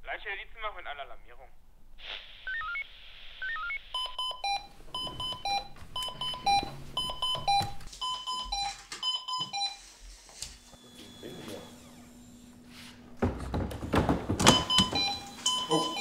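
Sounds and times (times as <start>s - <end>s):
pager rising tones: 3.4s - 12.4s
pager two-pitch beeping alarm: 3.6s - 9.9s, 14.5s - 16.0s.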